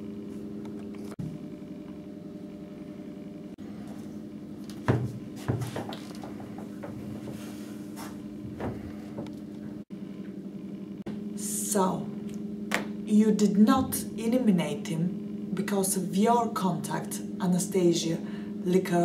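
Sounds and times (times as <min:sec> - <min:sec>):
low electrical hum: 0:00.0 - 0:19.0
office chair thumps and knocks: 0:04.6 - 0:09.5.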